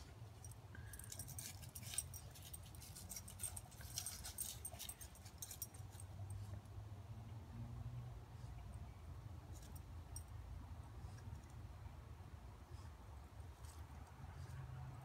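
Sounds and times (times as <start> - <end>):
faint metallic jingle: 0.0 - 6.6.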